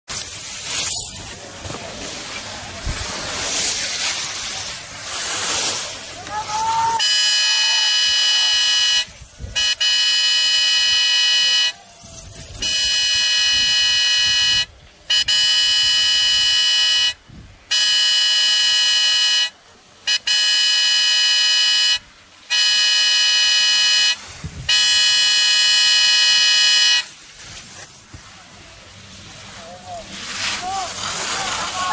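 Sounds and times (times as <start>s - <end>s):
air horn blasts: 7.0s - 11.8s, 12.6s - 19.5s, 20.1s - 27.1s.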